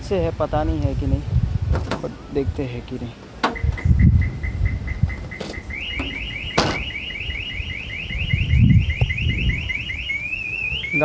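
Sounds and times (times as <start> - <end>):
car alarm beeping and chirping: 3.4 - 11.0.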